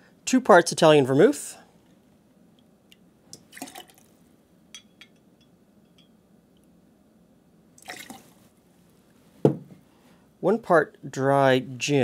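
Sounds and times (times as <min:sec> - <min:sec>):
liquid pouring splash: 0:03.4 - 0:04.1, 0:07.8 - 0:08.4
metal jigger clinking on glass: 0:04.7 - 0:06.2.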